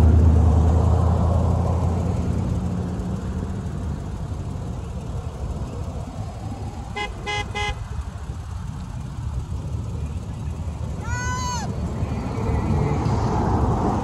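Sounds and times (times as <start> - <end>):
pickup truck engine passing: 0.0 - 14.0
tyre noise of cars: 0.0 - 14.0
car horn toots: 6.9 - 8.0.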